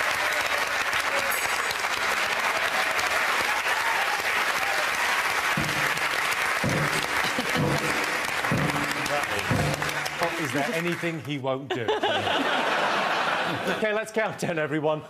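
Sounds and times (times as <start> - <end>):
audience applauding: 0.0 - 11.6
triangle struck: 5.6 - 10.2.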